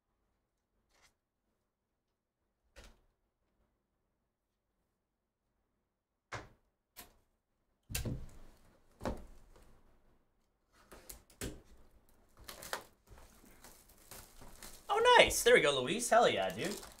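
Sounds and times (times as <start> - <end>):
plastic shrink-wrap crinkling: 12.3 - 17.0.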